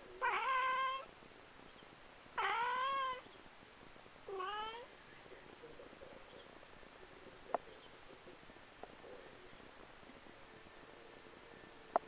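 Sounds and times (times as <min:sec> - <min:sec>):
cat meowing: 0:00.2 - 0:01.1, 0:02.4 - 0:03.3, 0:04.3 - 0:04.9.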